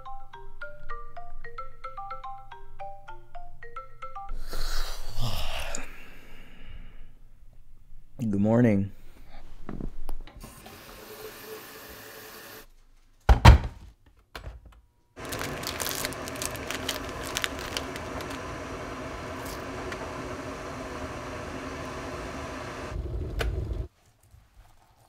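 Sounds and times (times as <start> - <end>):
plastic packaging crinkling: 15.2 - 18.8
steady hum: 15.2 - 23.9.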